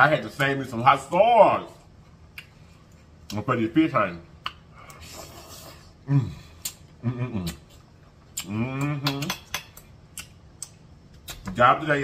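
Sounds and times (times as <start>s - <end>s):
slurping noodles: 5.0s - 6.0s
man humming mmm: 5.0s - 7.6s, 8.4s - 9.3s
fork clicking on plate: 8.8s - 11.4s.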